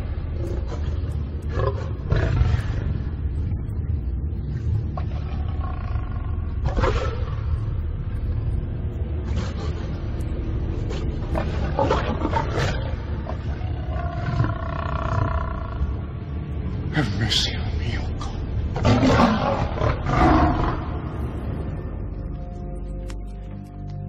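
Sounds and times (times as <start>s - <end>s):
lions growling: 0.0s - 8.4s, 9.2s - 22.6s
steady low rumble: 0.0s - 24.0s
lion snarls: 0.4s - 3.2s, 5.0s - 7.7s, 9.2s - 10.1s, 10.8s - 16.0s, 17.0s - 21.2s.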